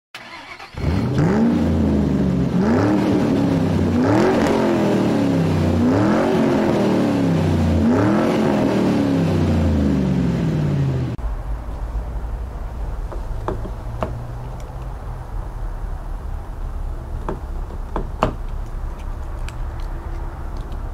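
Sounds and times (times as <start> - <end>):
car engine revving: 0.2 - 11.2.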